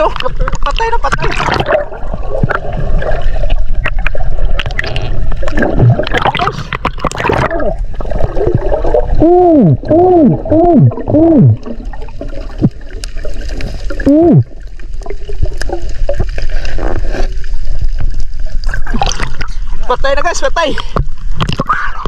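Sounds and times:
water gurgling: 0:00.0 - 0:22.0
underwater hooting calls: 0:09.1 - 0:11.9.

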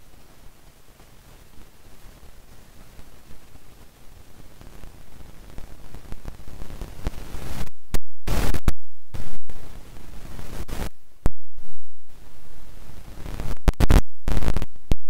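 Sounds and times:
loud static hiss: 0:00.0 - 0:15.0.

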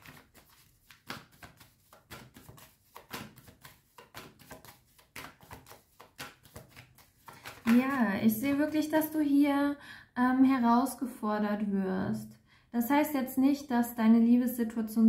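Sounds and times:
cards flicking and tapping: 0:00.0 - 0:07.9.

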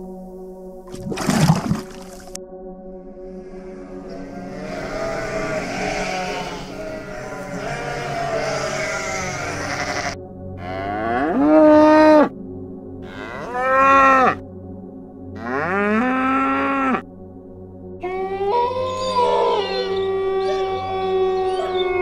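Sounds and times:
cattle mooing: 0:04.0 - 0:12.3, 0:13.0 - 0:14.4, 0:15.4 - 0:17.0, 0:18.0 - 0:22.0
sheep bleating: 0:04.1 - 0:12.3, 0:13.0 - 0:14.4, 0:15.4 - 0:17.0, 0:18.0 - 0:22.0.

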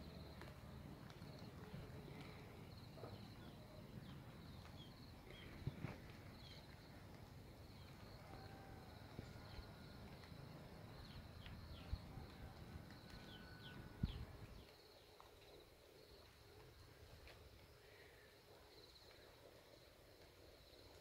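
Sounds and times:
high insect hum: 0:00.0 - 0:21.0
low wind rumble: 0:08.6 - 0:14.6.

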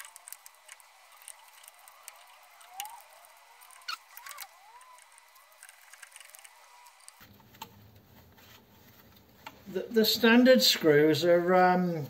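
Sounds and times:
short squeaks: 0:00.0 - 0:07.2.

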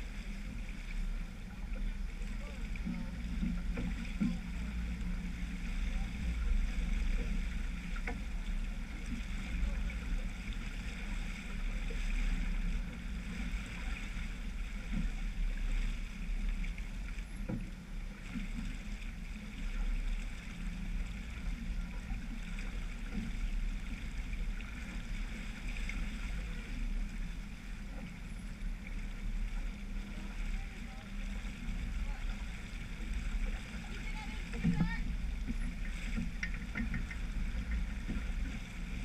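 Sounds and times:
water rushing along hull: 0:00.0 - 0:39.0
faint knock: 0:34.6 - 0:38.3.

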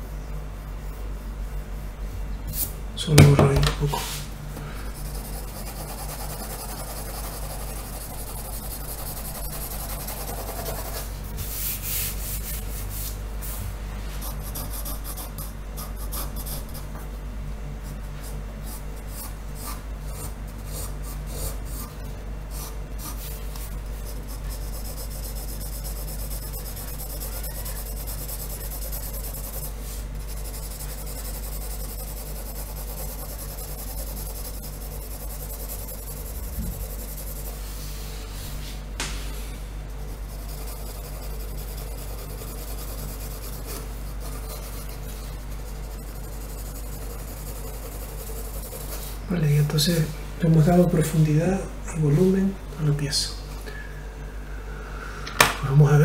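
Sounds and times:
steady low hum: 0:00.0 - 0:56.0
pencil scratching on paper: 0:05.0 - 0:17.1, 0:17.8 - 0:38.0, 0:39.9 - 0:49.2.

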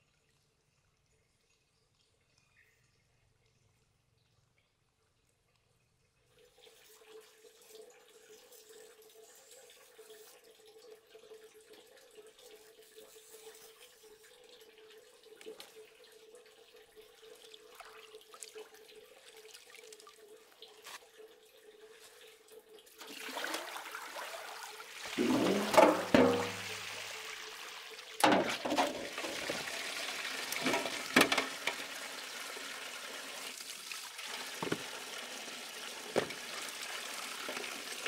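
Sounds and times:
small water splashes: 0:17.2 - 0:21.0, 0:22.9 - 0:27.3.

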